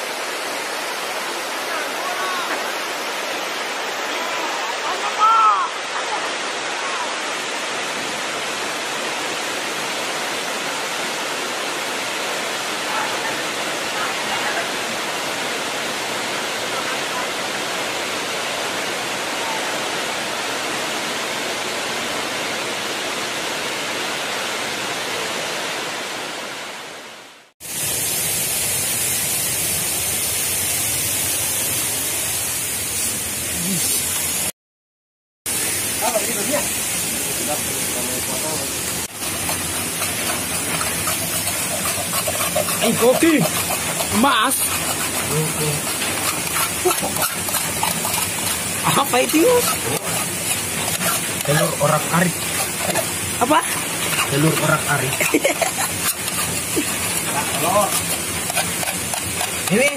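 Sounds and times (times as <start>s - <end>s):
waterfall rushing: 0.0s - 32.6s, 35.5s - 59.9s
bright steady hiss: 27.6s - 34.5s, 35.5s - 59.9s.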